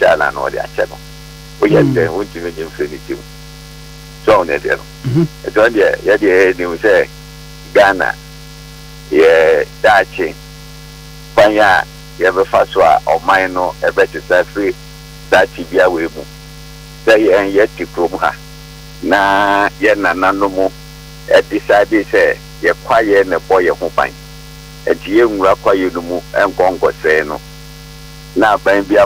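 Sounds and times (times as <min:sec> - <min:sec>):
electrical mains hum: 0:00.0 - 0:29.0
person talking: 0:01.6 - 0:02.8, 0:04.3 - 0:05.8.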